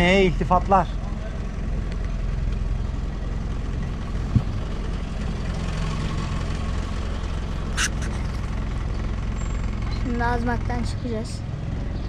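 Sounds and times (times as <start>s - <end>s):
boat engine humming: 0.0s - 12.0s
short hiss: 7.8s - 8.2s.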